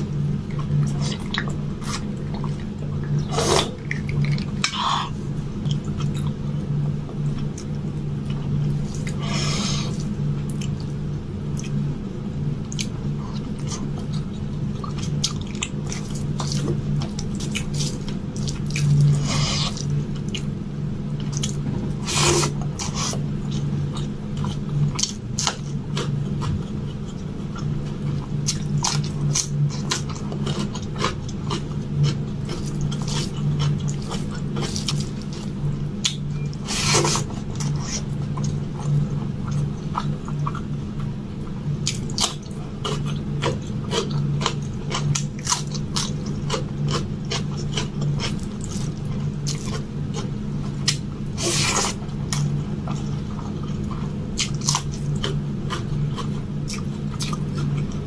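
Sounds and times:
low hum: 0.0s - 58.0s.

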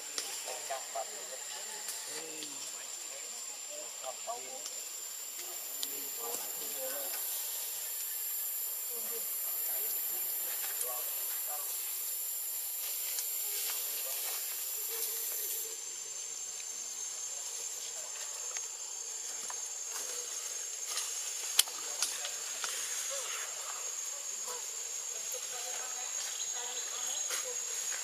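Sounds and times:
high-pitched insect drone: 0.0s - 28.0s
higher hiss: 5.0s - 17.0s.

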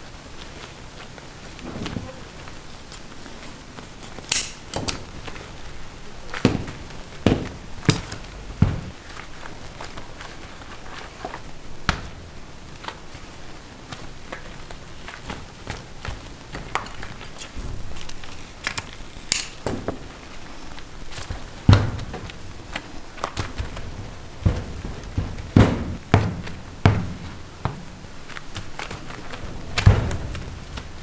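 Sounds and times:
loud knock: 6.4s - 9.0s, 24.4s - 27.9s.

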